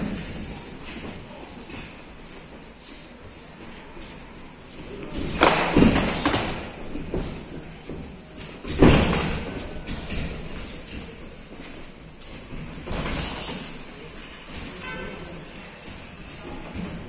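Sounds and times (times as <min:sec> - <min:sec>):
footwork on canvas: 0:00.0 - 0:15.0.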